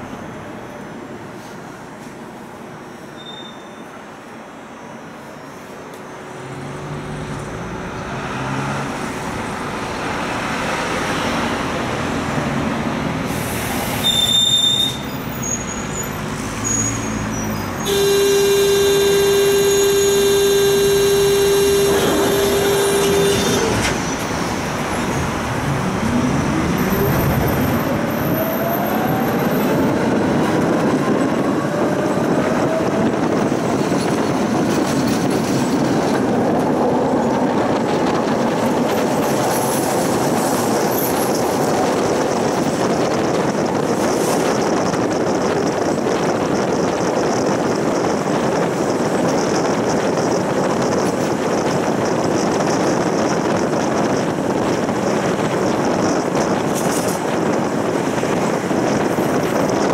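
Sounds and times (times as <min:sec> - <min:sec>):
tram rumbling: 0:00.0 - 0:59.9
short high beep: 0:03.2 - 0:03.9
electric buzzer: 0:17.9 - 0:23.7
traction motors whining: 0:18.9 - 0:24.5.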